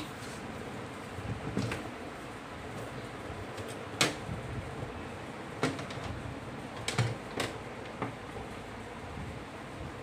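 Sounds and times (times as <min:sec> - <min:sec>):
computer case panel clicks and knocks: 0:04.0 - 0:04.2, 0:05.6 - 0:06.2, 0:06.8 - 0:08.2.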